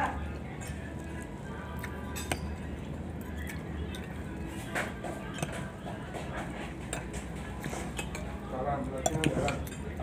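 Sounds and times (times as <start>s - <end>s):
cutlery clinking on a plate: 2.0s - 2.7s, 3.9s - 8.4s, 9.0s - 10.0s.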